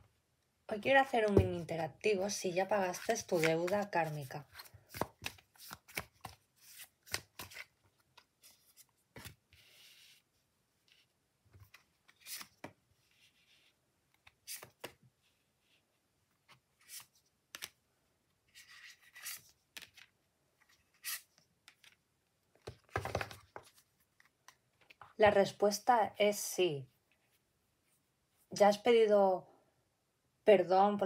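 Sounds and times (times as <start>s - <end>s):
cards being shuffled: 2.8s - 10.0s, 10.9s - 12.8s, 13.4s - 15.0s, 16.8s - 17.8s, 18.5s - 22.0s
cards sliding rustle: 3.0s - 15.0s, 16.5s - 17.8s, 18.5s - 22.0s.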